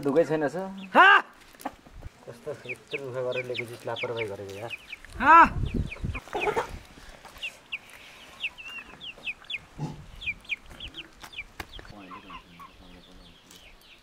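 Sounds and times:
chicken clucking: 0.0s - 13.6s
chicks peeping: 0.0s - 14.0s.

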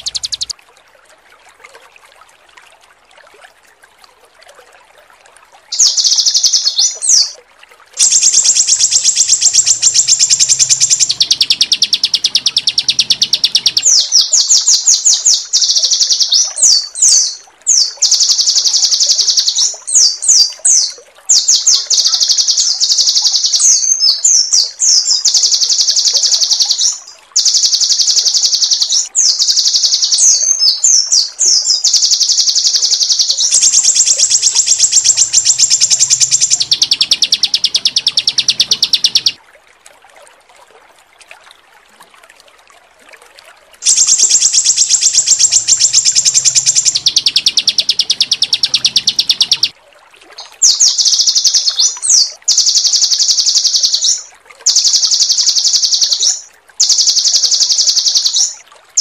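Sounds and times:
songbird trilling and chirping: 0.0s - 0.5s, 5.7s - 7.4s, 8.0s - 39.4s, 43.8s - 49.7s, 50.6s - 58.6s.

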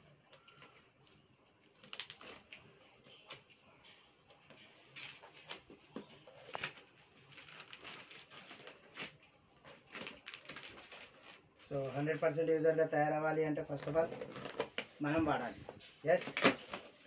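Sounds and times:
plastic bag crinkling: 0.2s - 3.6s, 4.8s - 12.2s.

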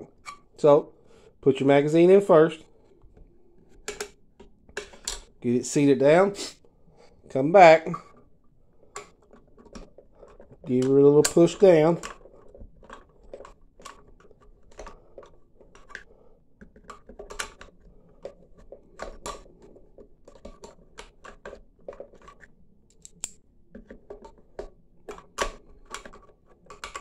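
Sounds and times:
metallic clicks and scrapes: 16.7s - 24.5s.

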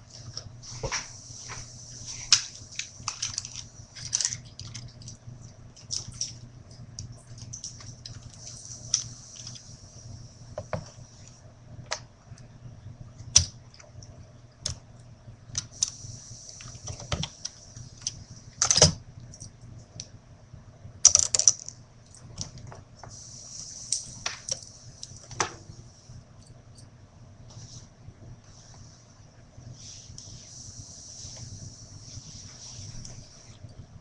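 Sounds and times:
clicks and rustling of wires: 0.0s - 9.8s, 13.2s - 20.2s, 21.0s - 23.2s, 23.9s - 25.7s
steady low hum: 0.0s - 34.0s.

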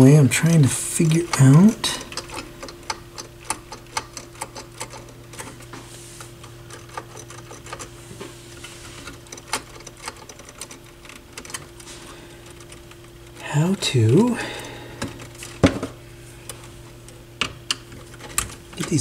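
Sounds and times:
steady low hum: 0.0s - 19.0s
small clicks and taps on metal: 1.1s - 5.5s, 16.5s - 19.0s.

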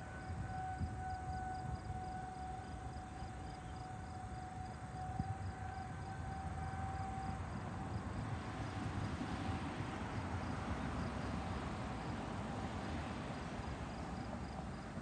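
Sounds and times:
faint warning siren: 0.0s - 15.0s.

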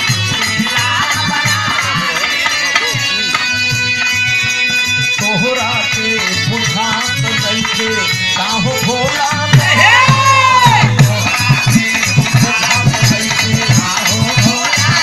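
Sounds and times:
hand drum beat: 0.0s - 15.0s
harmonium chords: 0.0s - 15.0s.

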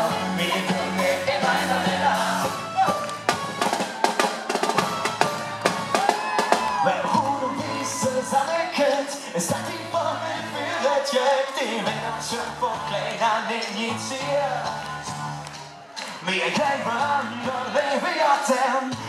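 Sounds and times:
voices singing: 0.0s - 3.2s, 6.8s - 19.0s
live band music: 0.0s - 10.8s.

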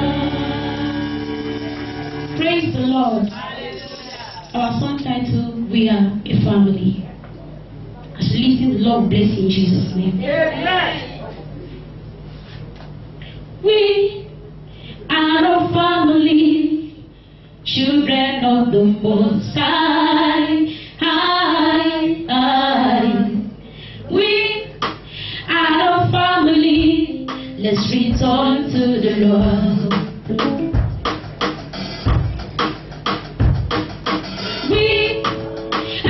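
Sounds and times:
people singing gospel into microphones: 0.0s - 2.3s, 19.1s - 23.5s.

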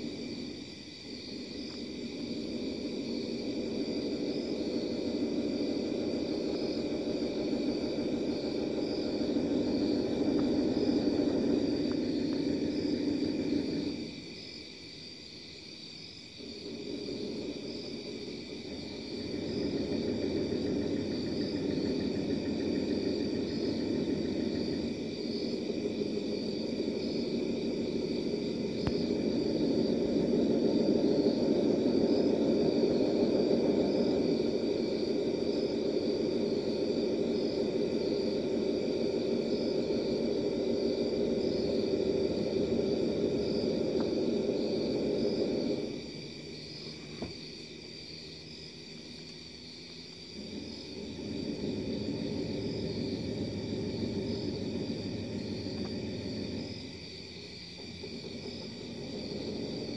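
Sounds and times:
low droning hum: 0.0s - 14.6s, 16.3s - 59.9s.

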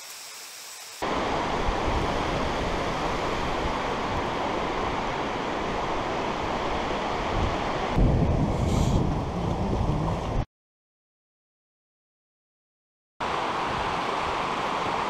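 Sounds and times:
river rushing over rocks: 13.2s - 15.0s.

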